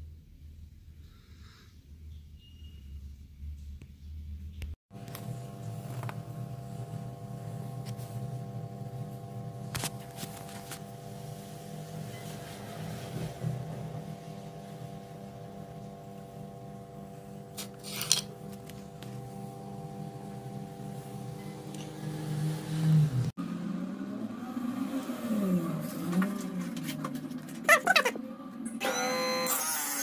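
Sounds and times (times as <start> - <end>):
steady low hum: 4.9 - 12.2, 12.8 - 24.8.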